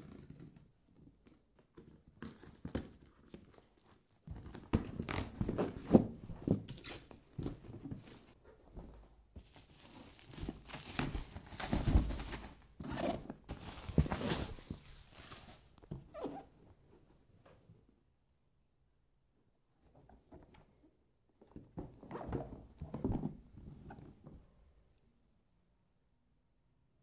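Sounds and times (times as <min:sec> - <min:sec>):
bubble wrap crinkling: 0:09.4 - 0:15.8.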